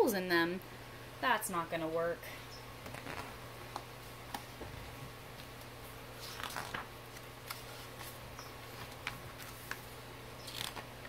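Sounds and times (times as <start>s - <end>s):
faint steady hum: 0.0s - 11.0s
book pages turning: 2.8s - 4.5s, 6.2s - 11.0s.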